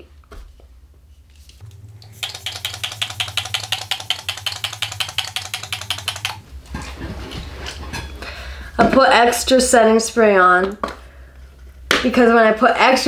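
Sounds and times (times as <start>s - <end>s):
spray bottle rapid sprays: 2.0s - 6.4s.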